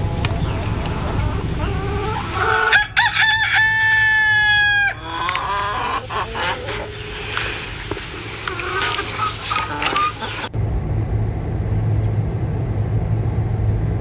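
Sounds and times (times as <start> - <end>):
rooster crowing: 1.3 - 6.0.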